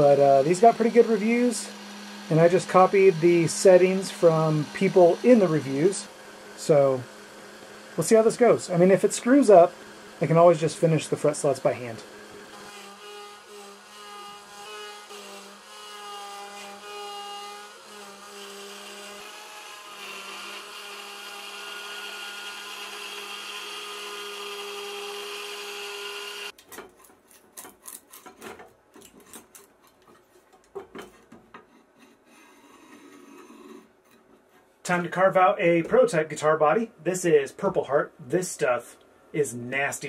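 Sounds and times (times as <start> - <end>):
router spindle whine: 0.0 - 26.5
wood handling knocks and rustles: 26.6 - 31.7.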